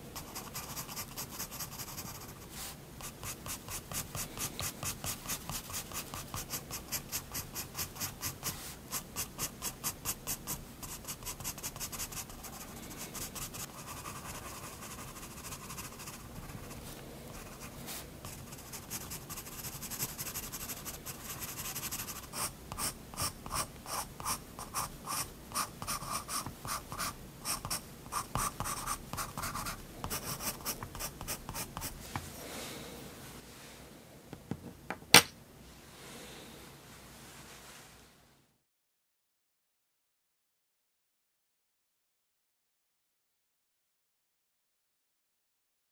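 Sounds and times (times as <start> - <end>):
pencil scratching on paper: 0.2 - 32.0.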